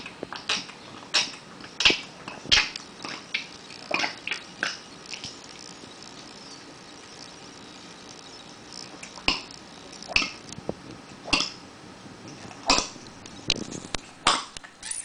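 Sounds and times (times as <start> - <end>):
cat retching: 0.5 - 4.8, 8.9 - 10.4, 11.2 - 11.6, 12.5 - 13.0.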